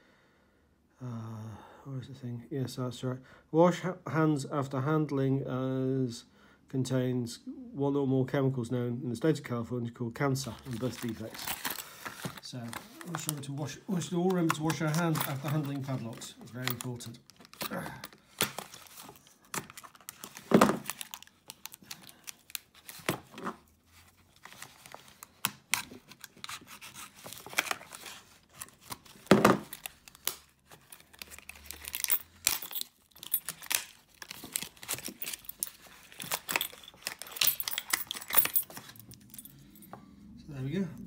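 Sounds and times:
plastic packaging crackling: 10.5 - 39.0.

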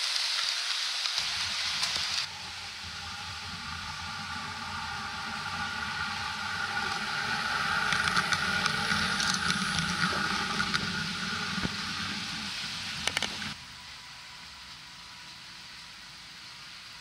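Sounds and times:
train wheels clicking on track: 0.0 - 13.6
model train motor humming: 0.0 - 17.0.

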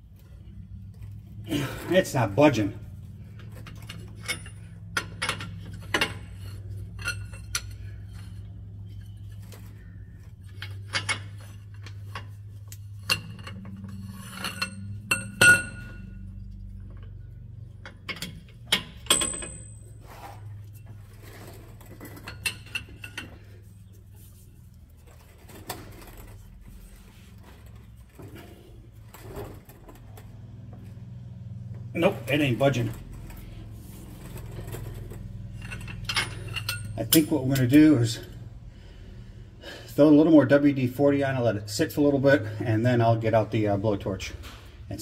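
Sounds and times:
steady low hum: 0.0 - 45.0
steel tools clinking and clanking: 2.6 - 24.2, 32.0 - 38.4.

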